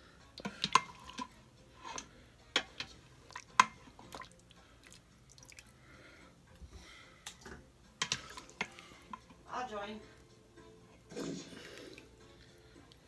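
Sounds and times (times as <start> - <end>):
broth dripping and splashing: 3.2 - 5.8.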